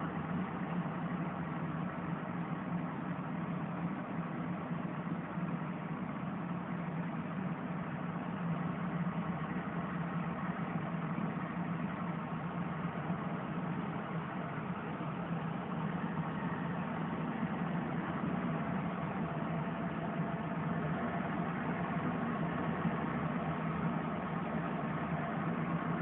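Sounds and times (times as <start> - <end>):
truck engine humming: 0.0 - 26.0.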